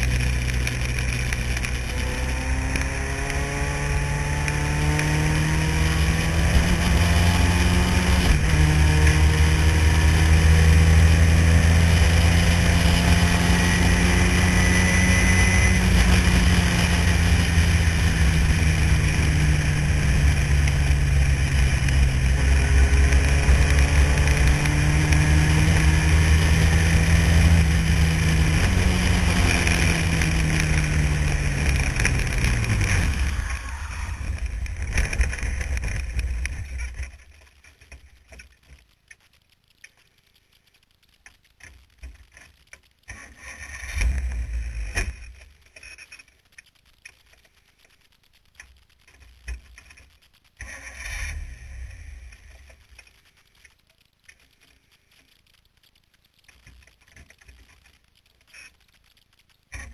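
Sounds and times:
race car engine at high revs: 0.0 - 36.0.

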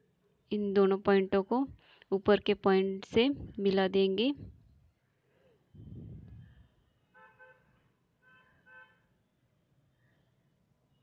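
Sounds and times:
faint vehicle horn toots: 7.1 - 9.1.

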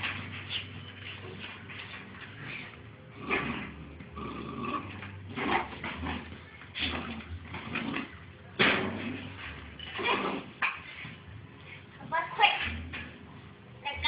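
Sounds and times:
puppies scuffling: 0.0 - 3.0.

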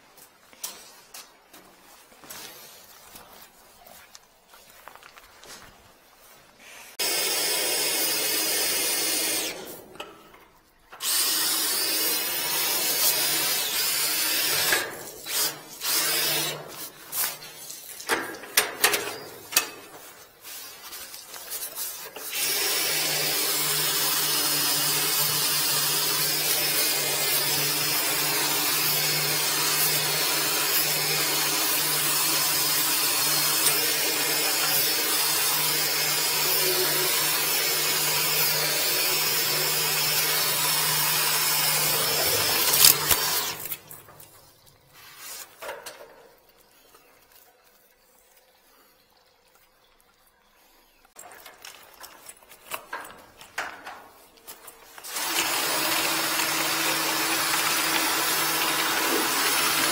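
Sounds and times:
drain-cleaning machine running: 7.0 - 10.1, 11.0 - 16.9, 22.2 - 43.8, 55.0 - 59.9.

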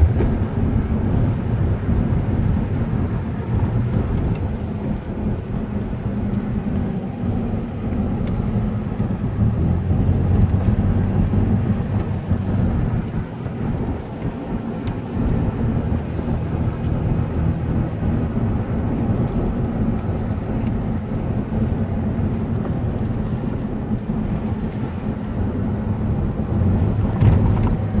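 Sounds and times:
car engine hum: 0.0 - 28.0
tyre and road rumble: 0.0 - 28.0.

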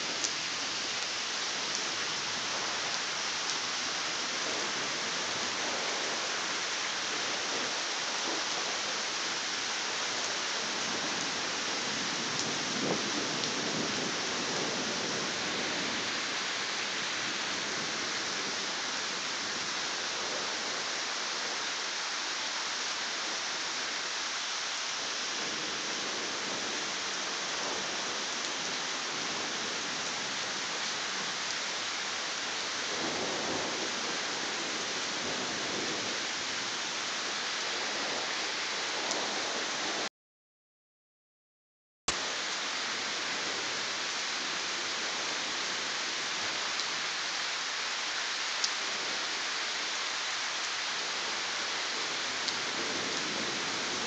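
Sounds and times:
steady rain falling: 0.0 - 40.1, 42.1 - 54.0
low rumble of thunder: 10.5 - 18.8, 32.8 - 36.6.

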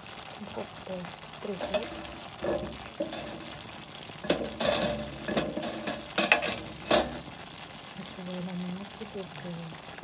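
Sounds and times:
sauce bubbling and sizzling: 0.0 - 10.0
spoon stirring: 1.6 - 7.4.

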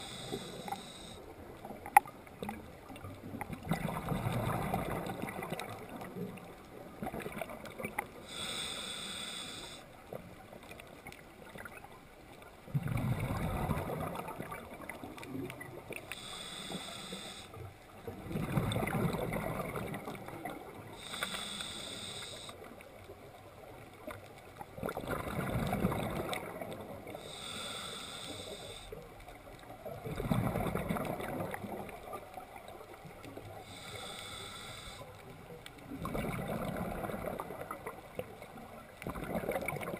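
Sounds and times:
regulator inhale hiss: 0.0 - 1.3, 8.2 - 10.0, 16.1 - 17.7, 21.0 - 22.7, 27.1 - 29.1, 33.4 - 35.2
rush of exhaled bubbles: 3.3 - 6.1, 12.7 - 15.9, 18.1 - 21.0, 24.8 - 27.0, 30.0 - 32.0, 35.9 - 38.2, 39.0 - 39.9.

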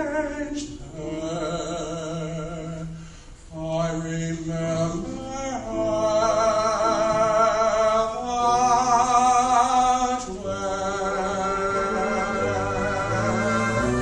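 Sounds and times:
mixed choir singing: 11.2 - 14.0.

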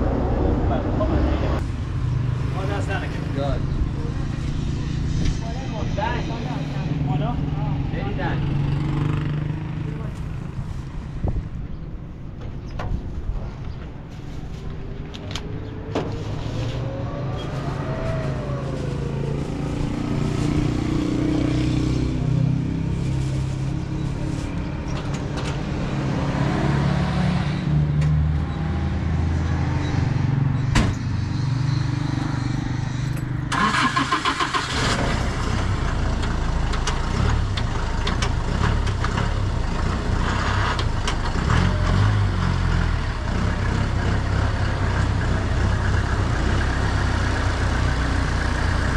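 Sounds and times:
truck engine starter cranking: 33.5 - 35.2.

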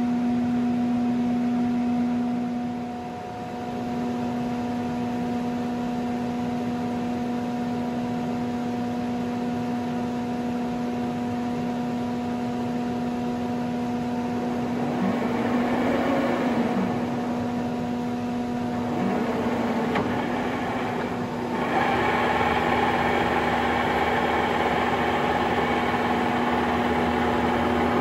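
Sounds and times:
milling machine humming: 14.2 - 28.0
rough mechanical noise: 14.2 - 28.0.

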